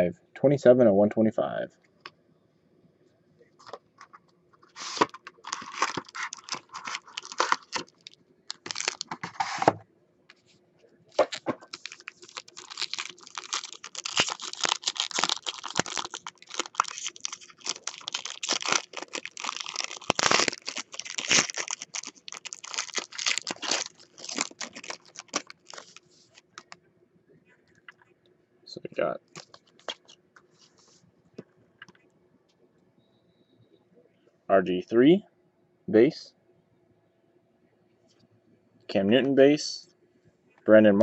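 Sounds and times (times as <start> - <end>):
foil wrapper crinkling and tearing: 4.6 - 9.4, 11.2 - 26.8, 29.3 - 30.2.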